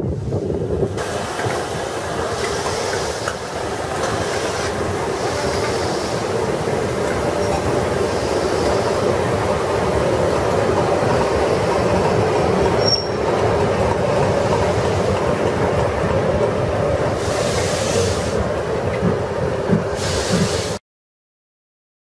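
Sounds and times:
steam locomotives rumbling: 0:00.0 - 0:20.8.

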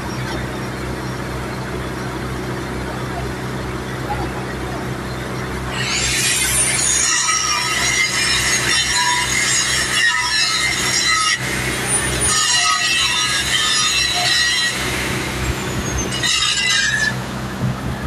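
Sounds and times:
low engine hum: 0:00.0 - 0:07.4, 0:14.7 - 0:18.0
welding arcs crackling and hissing: 0:05.7 - 0:17.2.

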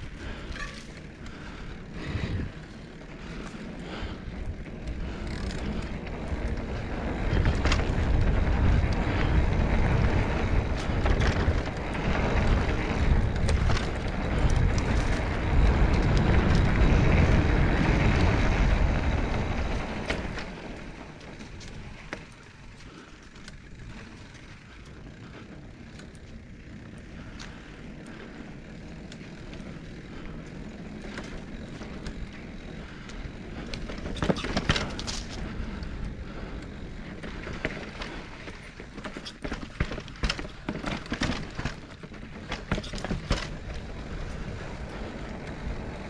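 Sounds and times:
wind buffeting microphone: 0:03.2 - 0:21.0.

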